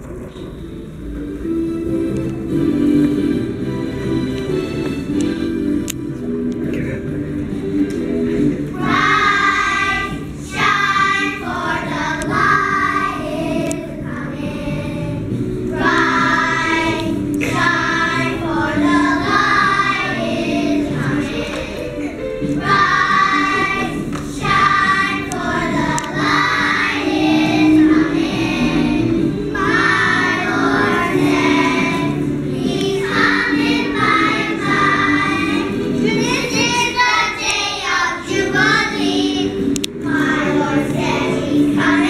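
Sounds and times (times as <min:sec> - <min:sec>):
children singing together: 0:08.4 - 0:42.0.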